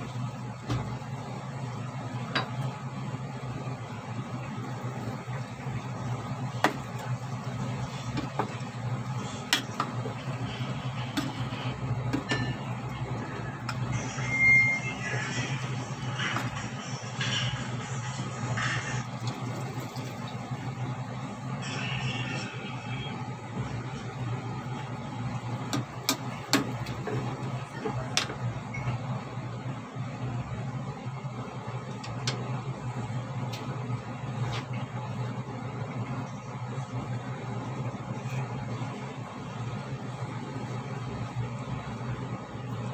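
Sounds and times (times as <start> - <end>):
pot boiling: 0.0 - 42.9
steady low hum: 0.0 - 42.9
high steady tone: 12.2 - 15.8.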